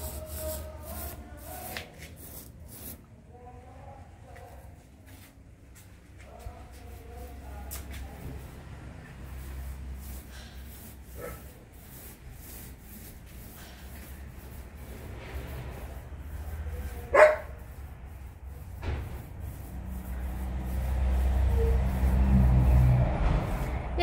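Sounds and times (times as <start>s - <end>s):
dog barking: 17.1s - 17.6s.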